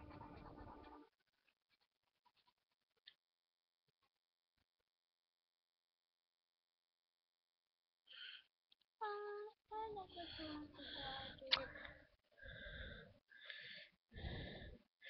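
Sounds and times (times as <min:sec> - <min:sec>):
high voice in broken snatches: 0:09.0 - 0:11.9.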